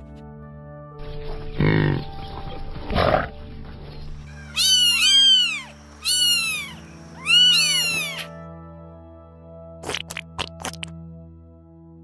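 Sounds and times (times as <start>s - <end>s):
background music: 0.0s - 12.0s
cat meowing: 4.5s - 8.3s.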